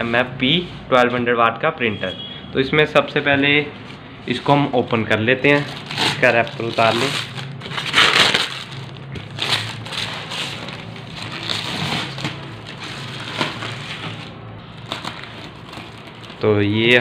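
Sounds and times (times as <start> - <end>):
plastic wrapping crinkling: 4.4 - 17.0.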